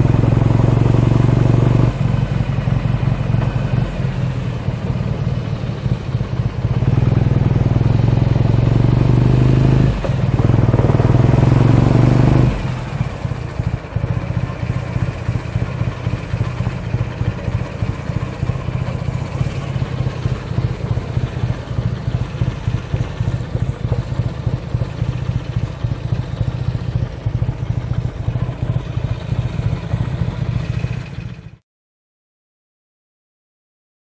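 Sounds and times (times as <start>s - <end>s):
motorcycle engine at low revs: 0.0s - 31.6s.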